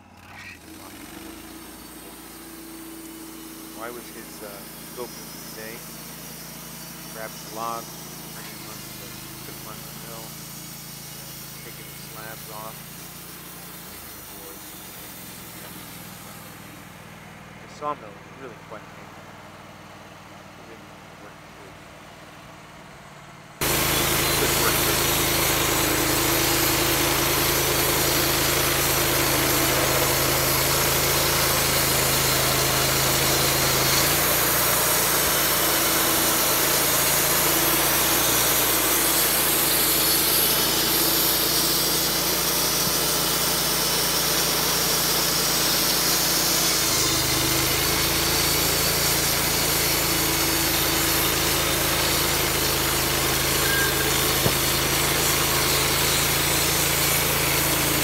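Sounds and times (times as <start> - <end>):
sawmill engine running: 0.0 - 58.0.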